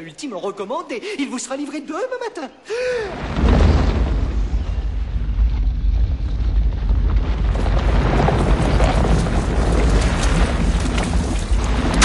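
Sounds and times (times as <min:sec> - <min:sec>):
low rumble with crashing: 0:03.1 - 0:12.0.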